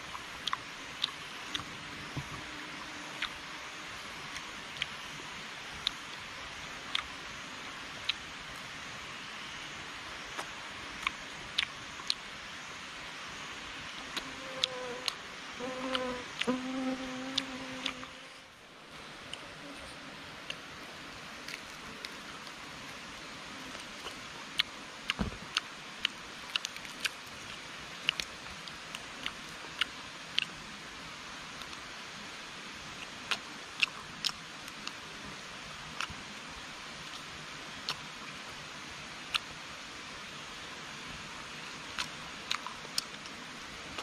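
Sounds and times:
forest background hiss: 0.0 - 44.0
crunch while eating: 21.4 - 22.6, 23.6 - 30.5, 41.9 - 44.0
chewing and tearing meat: 42.0 - 43.3.

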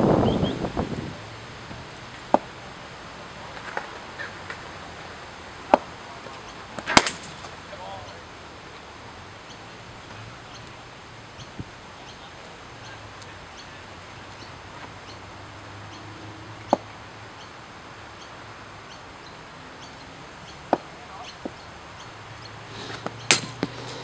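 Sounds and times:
cricket ball hitting bat: 6.8 - 7.5, 23.0 - 24.0.

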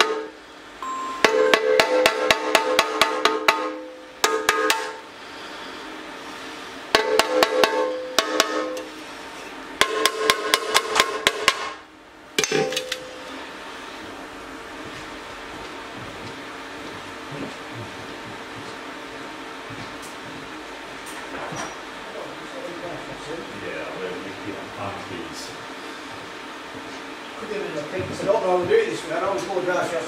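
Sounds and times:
hammer tapping on metal tank: 1.2 - 5.0, 7.0 - 8.9, 9.8 - 11.8.

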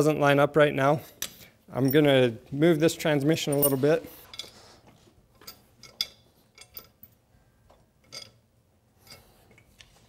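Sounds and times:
faint metal clicks and knocks: 3.6 - 8.4.

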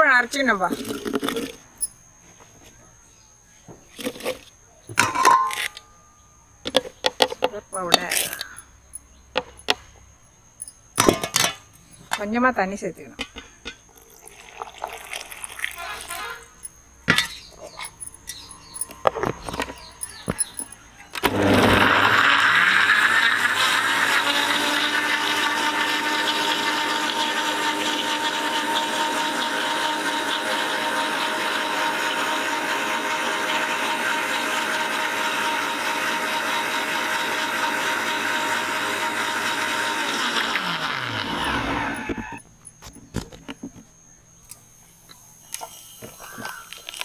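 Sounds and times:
jar clicks and knocks: 10.6 - 12.3, 17.1 - 20.8
mixer grinder motor blending: 18.7 - 42.4.

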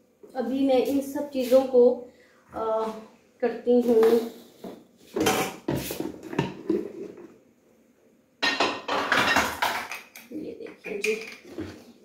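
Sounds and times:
pots and lids clattering: 8.4 - 10.2.

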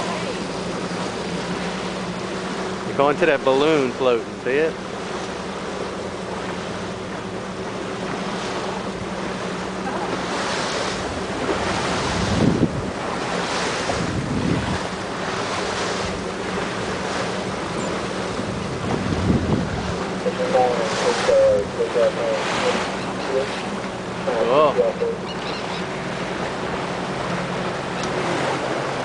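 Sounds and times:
water lapping around boat: 0.0 - 29.0
wind buffeting microphone: 5.0 - 24.3.

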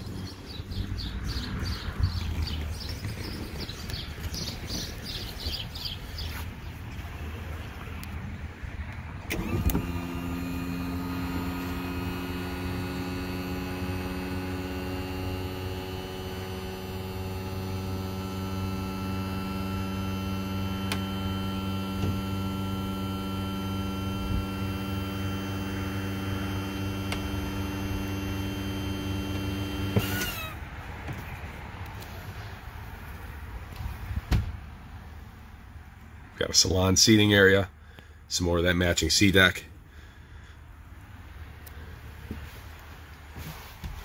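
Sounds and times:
electric motor humming: 9.3 - 30.6.

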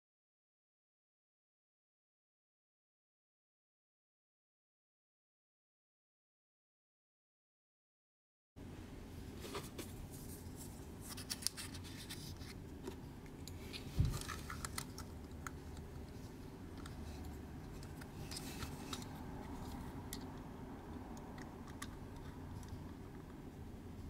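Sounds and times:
plastic parts clicking and scratching: 11.0 - 20.4, 21.2 - 23.4.

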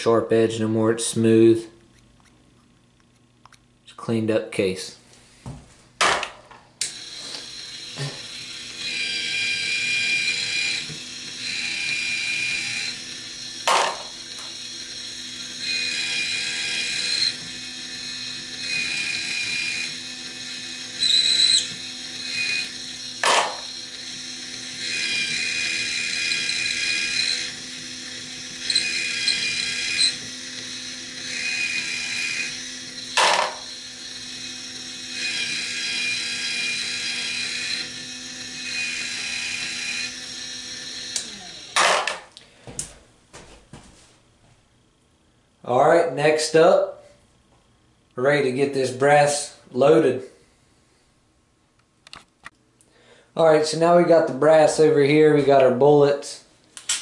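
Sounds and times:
electric motor running: 6.8 - 42.4
high scraping whir: 6.8 - 42.4.

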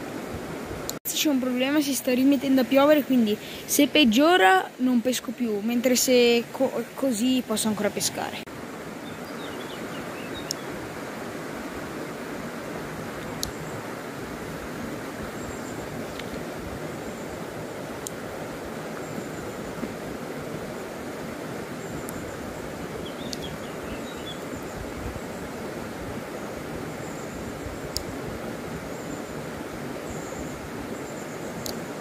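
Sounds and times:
faint sharp ticks: 10.4 - 10.6, 13.2 - 13.6, 23.3 - 23.5, 27.9 - 28.1, 31.6 - 31.8.

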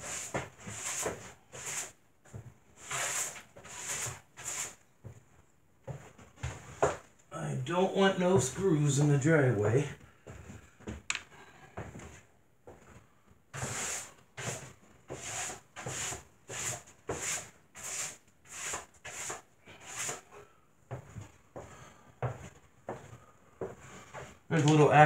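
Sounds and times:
broom sweeping plywood floor: 0.0 - 5.2, 5.8 - 7.1, 11.7 - 25.0.

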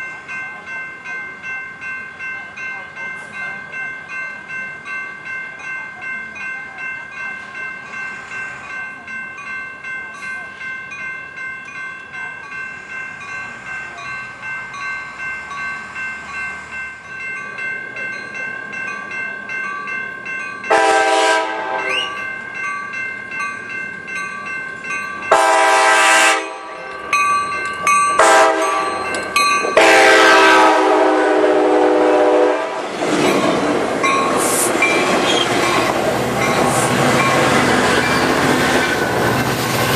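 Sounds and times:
pulsing crossing bell ring: 0.0 - 32.5, 33.2 - 39.9
train wheels passing: 12.4 - 39.9
train horn blasts: 20.7 - 22.2, 25.3 - 26.8, 28.2 - 29.0, 29.8 - 32.9.

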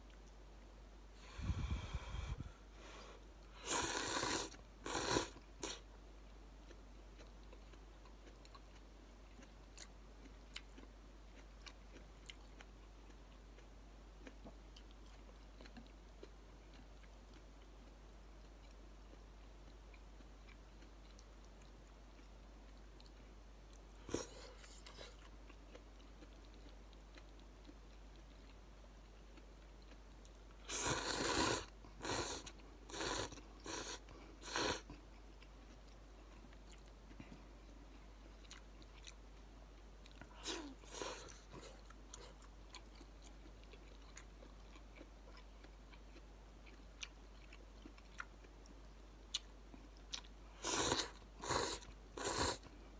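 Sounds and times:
quiet chewing: 2.9 - 52.9
person slurping noodles: 3.6 - 5.8, 30.7 - 34.8, 50.6 - 52.6.

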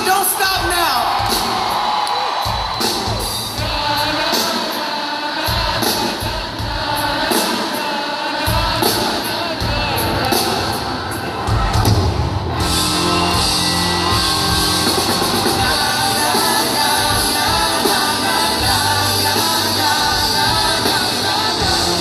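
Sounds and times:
live pop-rock band with singing: 0.0 - 22.0.

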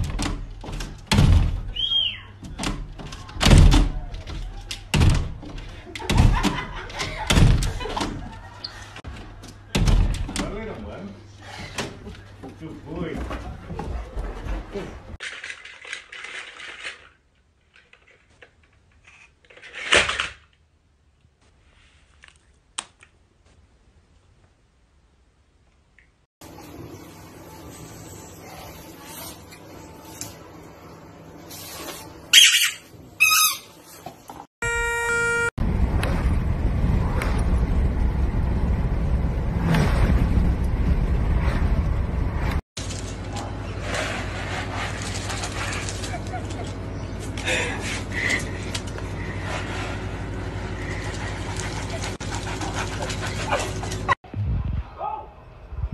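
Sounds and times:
horn-like toot: 34.6 - 35.6
wind rushing through car window: 35.6 - 42.6, 55.6 - 55.9.

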